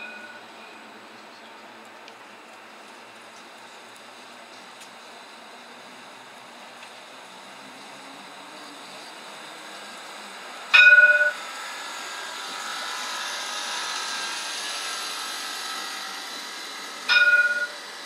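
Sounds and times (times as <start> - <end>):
tram warning chime: 0.0 - 0.8, 10.7 - 11.5, 17.1 - 17.9
tram wheels hissing on rail: 0.0 - 18.0.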